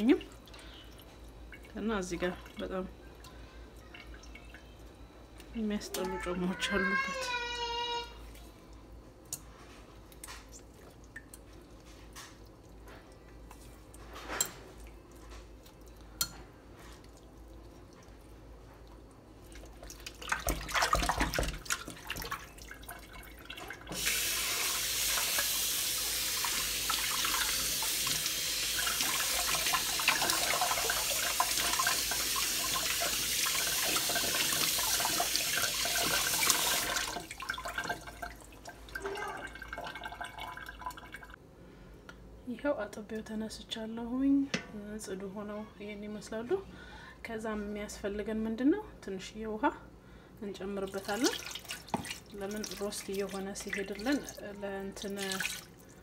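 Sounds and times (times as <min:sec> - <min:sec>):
water splashing in a bowl: 0:16.8 - 0:41.4, 0:50.8 - 0:56.0
faucet running into steel sink: 0:20.3 - 0:41.3.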